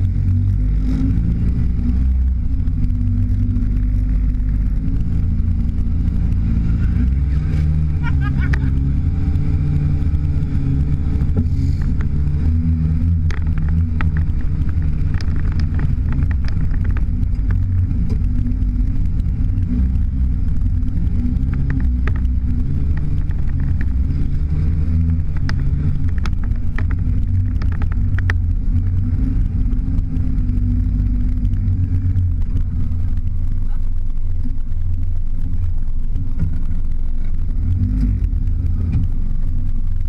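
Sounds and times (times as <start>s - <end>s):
vehicle engine running: 0.0s - 40.0s
knocks and rattles: 9.6s - 33.7s.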